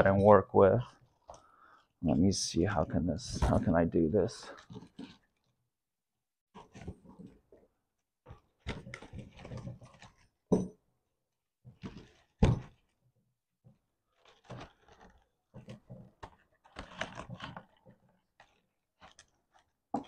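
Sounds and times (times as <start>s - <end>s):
wiring harness rustling and clattering: 4.5s - 5.6s, 14.1s - 19.8s.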